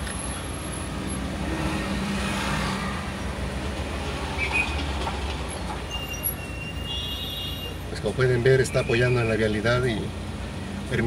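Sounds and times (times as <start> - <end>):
vehicle engines in slow traffic: 0.0 - 11.0
brief high squeak: 5.9 - 7.8.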